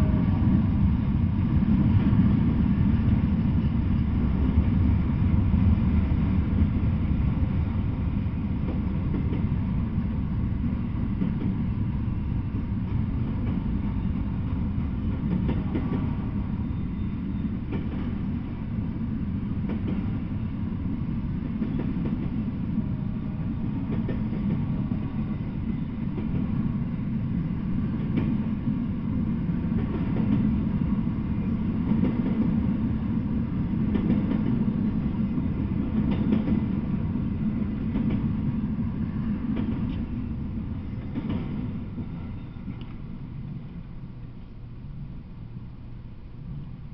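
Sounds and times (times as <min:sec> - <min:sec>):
train wheels rumbling on rails: 0:00.0 - 0:46.9
faint clicks: 0:42.8 - 0:43.0.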